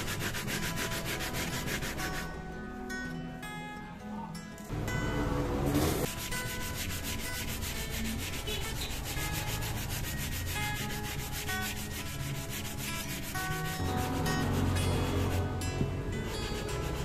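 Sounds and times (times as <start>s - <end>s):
sandpaper rubbing wood: 0.0s - 2.3s, 6.0s - 15.5s, 16.4s - 17.0s.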